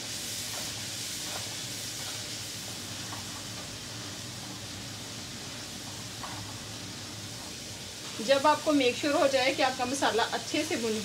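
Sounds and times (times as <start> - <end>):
spatula stirring in wok: 0.0 - 8.1
spices sizzling in oil: 0.0 - 11.0.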